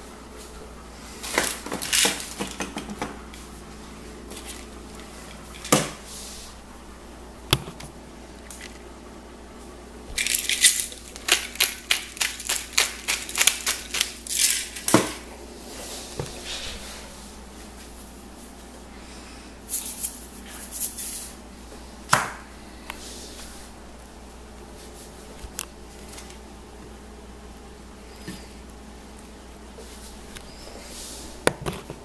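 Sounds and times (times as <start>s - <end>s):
seasoning shaker rattling: 10.2s - 15.0s, 19.7s - 21.4s.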